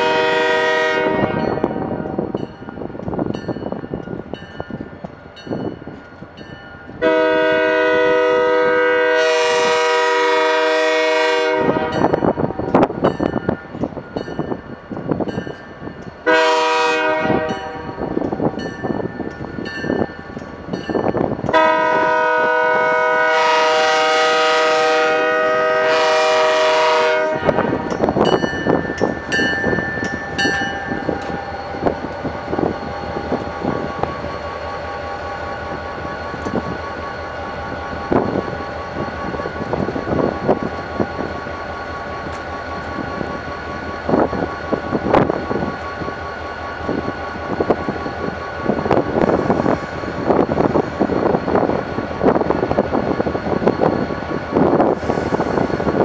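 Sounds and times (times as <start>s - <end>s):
locomotive air horn: 0.0s - 1.9s, 7.0s - 12.1s, 16.2s - 18.0s, 21.5s - 27.9s.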